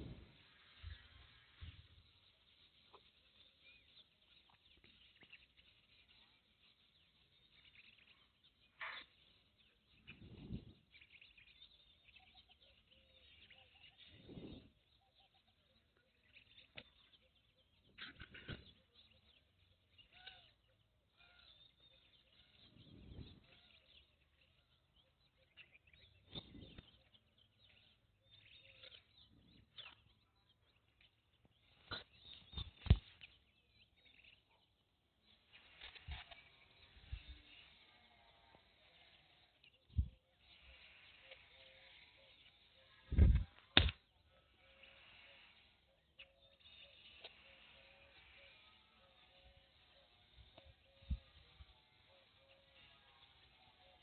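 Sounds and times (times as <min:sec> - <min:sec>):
faint bird chirps: 0:00.0 - 0:54.0
small ticks: 0:47.0 - 0:48.8.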